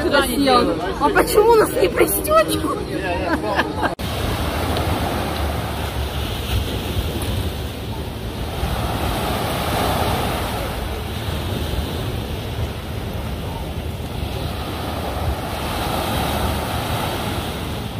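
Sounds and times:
wind rumbling on microphone: 4.0s - 17.9s.

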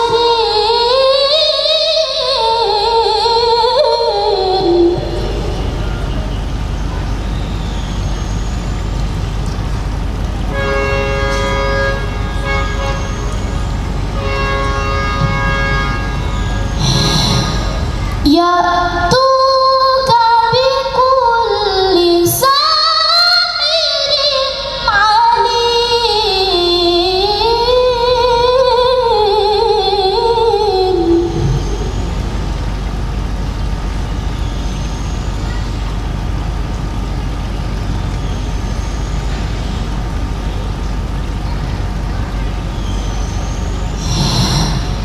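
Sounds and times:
woman reciting melodically: 0.0s - 5.8s, 18.1s - 32.2s
background hiss and hum: 0.0s - 45.0s.

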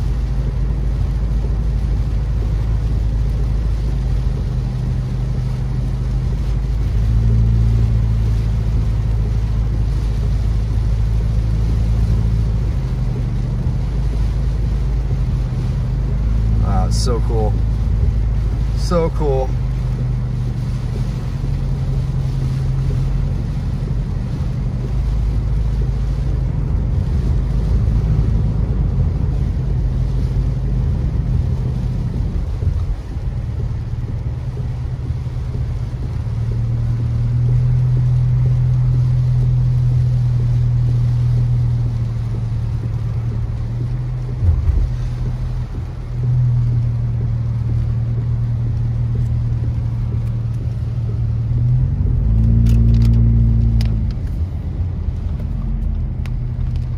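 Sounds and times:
car engine hum: 0.0s - 56.9s
tyres on wet road: 0.0s - 56.9s.

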